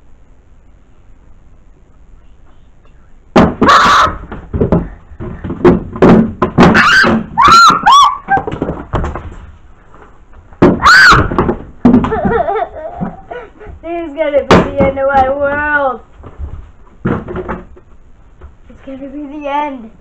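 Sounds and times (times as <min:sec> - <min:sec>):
thumps and bangs: 0:03.3 - 0:09.6, 0:10.5 - 0:13.3, 0:14.4 - 0:18.6
child screaming: 0:06.7 - 0:08.4, 0:10.8 - 0:11.4.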